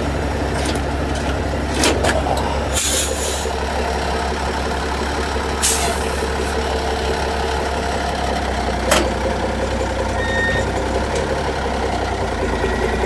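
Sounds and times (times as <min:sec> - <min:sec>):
truck engine idling: 0:00.0 - 0:13.0
air hissing: 0:02.7 - 0:03.5.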